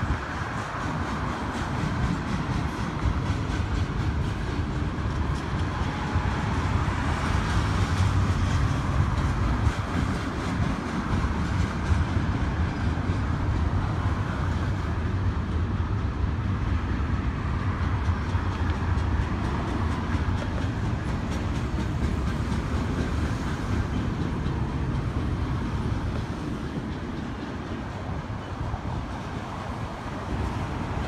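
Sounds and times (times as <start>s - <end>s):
freight train wheels rumbling: 0.0s - 31.0s
faint rail clicks: 17.8s - 30.7s.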